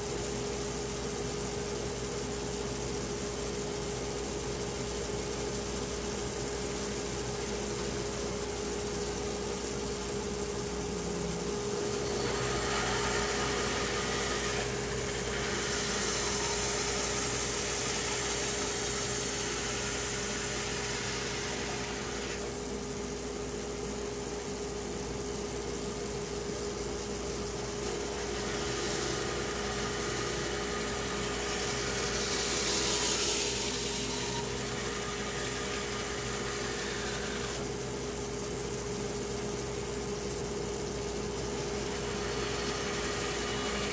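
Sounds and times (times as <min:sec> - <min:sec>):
saw humming: 0:11.4 - 0:22.6, 0:27.2 - 0:38.4, 0:41.4 - 0:43.9
saw blade hissing through wood: 0:11.6 - 0:22.6, 0:27.2 - 0:38.2, 0:41.6 - 0:43.9.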